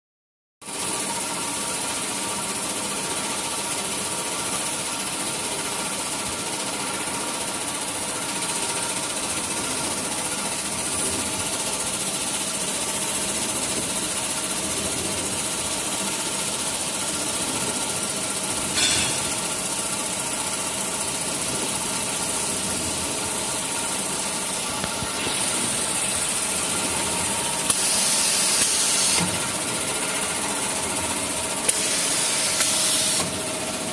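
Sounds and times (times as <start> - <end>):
cutting machine drone: 18.6 - 19.8.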